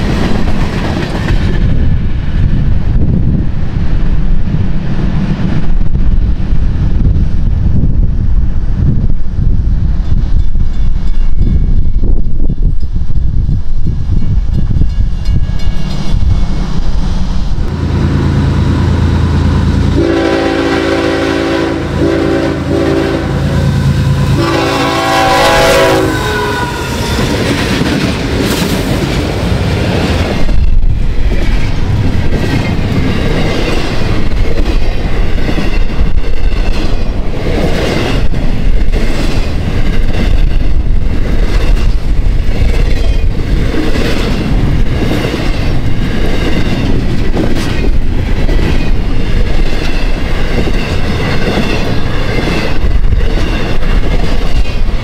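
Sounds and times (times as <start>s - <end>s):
clickety-clack of train wheels: 0.0s - 7.9s, 8.8s - 17.0s, 26.8s - 55.0s
diesel locomotive engine rumbling: 0.0s - 55.0s
multi-tone air horn blasts: 20.0s - 27.3s.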